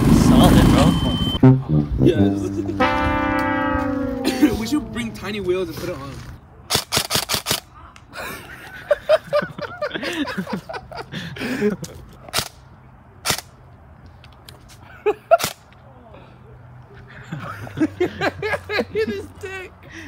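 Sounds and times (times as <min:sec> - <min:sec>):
people talking indistinctly: 0:00.3 - 0:06.4.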